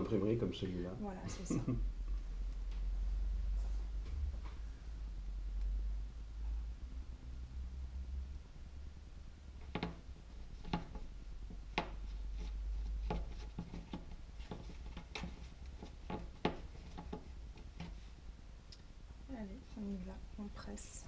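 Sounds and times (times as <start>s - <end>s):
soft rubbing of clay: 9.6s - 21.0s.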